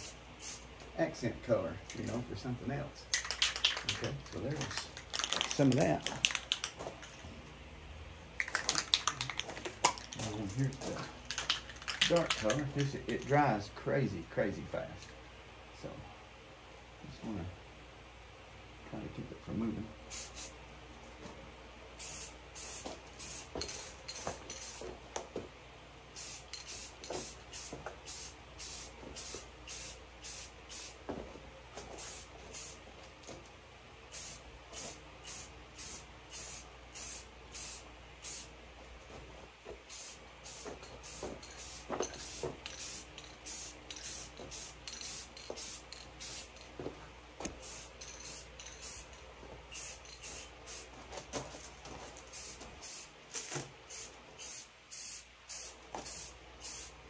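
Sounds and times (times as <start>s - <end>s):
spray paint can hissing: 0.0s - 0.7s, 11.3s - 12.6s, 20.1s - 20.5s, 22.0s - 24.9s, 26.2s - 31.0s, 32.0s - 32.8s, 34.1s - 38.5s, 39.8s - 46.6s, 47.5s - 50.9s, 52.3s - 53.1s, 53.9s - 57.0s.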